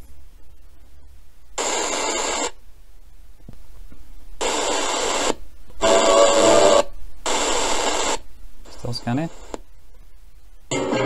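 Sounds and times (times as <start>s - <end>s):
hissy radio sound: 1.6s - 2.6s, 4.4s - 9.7s.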